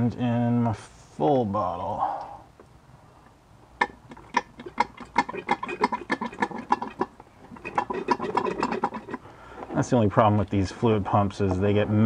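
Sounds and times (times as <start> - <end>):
hand pump clicking: 3.8 - 9.2.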